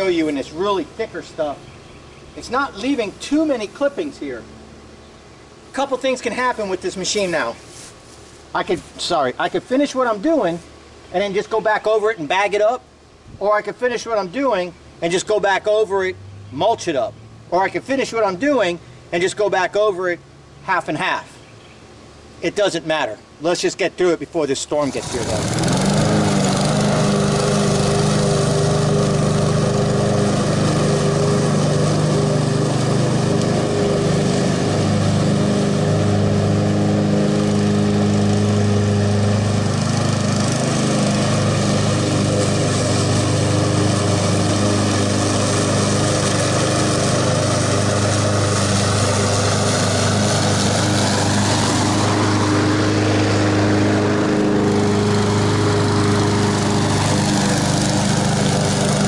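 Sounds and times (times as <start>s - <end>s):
lawn mower engine cutting grass: 0.0s - 12.8s, 23.5s - 59.0s.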